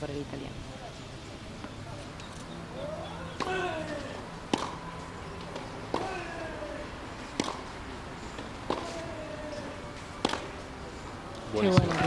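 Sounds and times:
racket striking tennis ball: 0:03.3 - 0:10.7.

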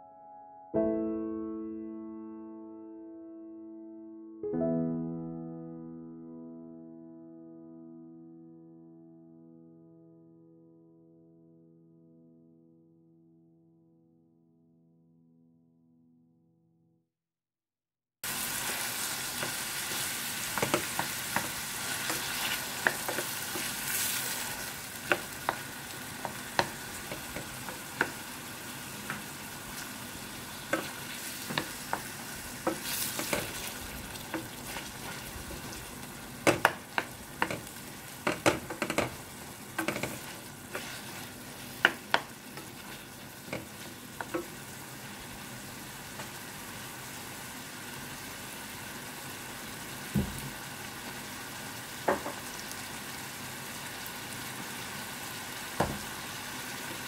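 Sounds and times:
vegetables sizzling in oil: 0:18.2 - 0:57.0
wooden spoon knocking against pan: 0:20.6 - 0:23.7, 0:25.0 - 0:28.2, 0:30.7 - 0:33.6, 0:36.4 - 0:40.9, 0:41.8 - 0:42.7, 0:43.5 - 0:44.6, 0:52.1 - 0:52.5.

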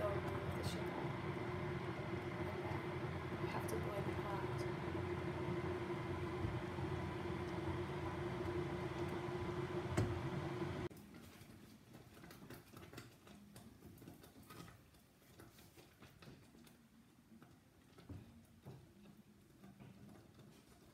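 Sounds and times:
kitchen hum and hiss: 0:00.0 - 0:12.0
spatula stirring jam in saucepan: 0:11.1 - 0:20.9.

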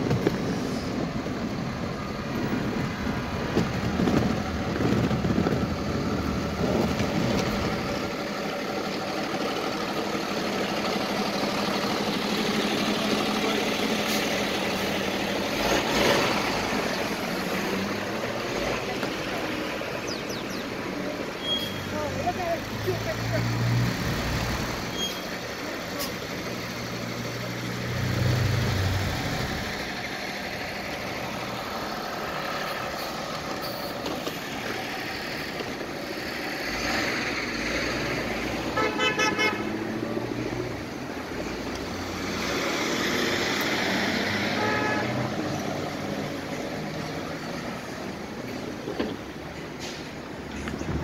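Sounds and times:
traffic passing: 0:00.0 - 0:51.0
vehicle horn tooting: 0:38.8 - 0:39.8, 0:44.6 - 0:45.2.

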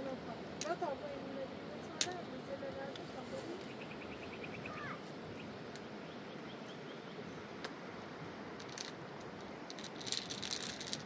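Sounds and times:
faint bird chirps: 0:03.6 - 0:07.2.

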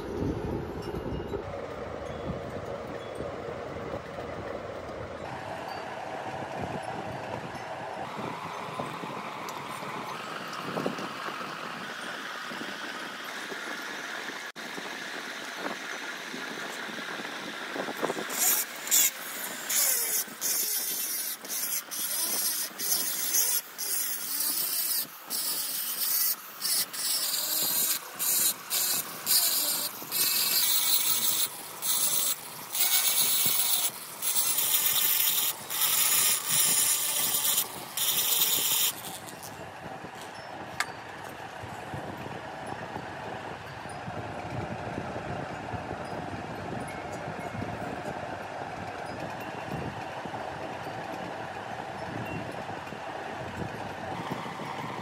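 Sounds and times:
rotary grinding tool grinding metal: 0:16.6 - 0:39.6.

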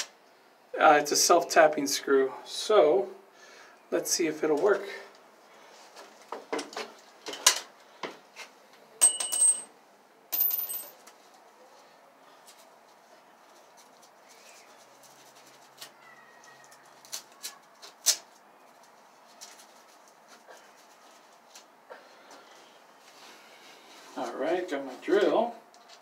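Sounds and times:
high metallic ring: 0:09.0 - 0:09.7.

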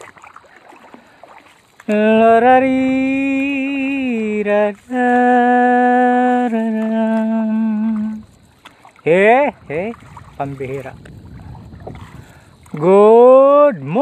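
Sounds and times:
person chanting long notes: 0:01.9 - 0:08.2.

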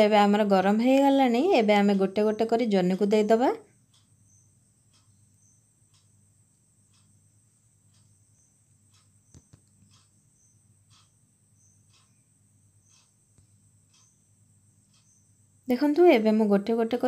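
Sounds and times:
soft ticks: 0:01.9 - 0:17.0.

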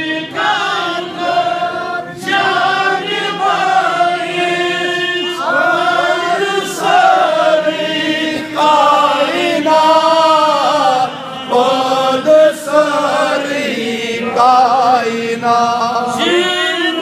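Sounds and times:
man chanting into a microphone: 0:08.1 - 0:17.0.

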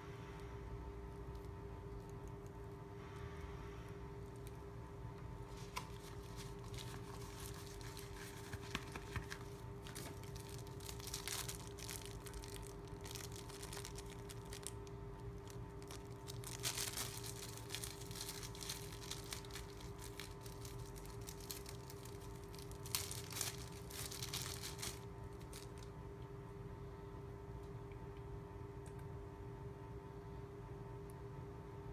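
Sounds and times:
plastic bag crinkling: 0:05.4 - 0:25.9.

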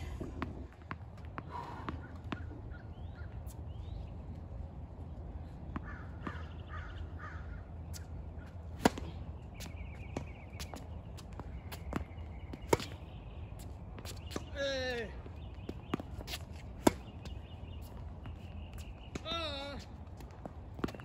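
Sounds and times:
tennis ball bouncing on hard court: 0:00.3 - 0:02.5, 0:05.7 - 0:06.6, 0:08.7 - 0:13.1, 0:15.6 - 0:17.4, 0:20.2 - 0:21.0
crows cawing: 0:05.8 - 0:07.6.

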